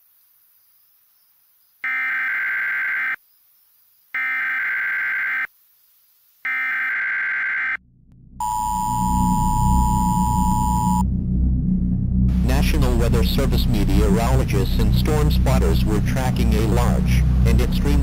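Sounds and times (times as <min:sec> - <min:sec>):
low rumbling music bed: 0:07.8 - 0:18.0
two-tone attention signal: 0:08.4 - 0:11.0.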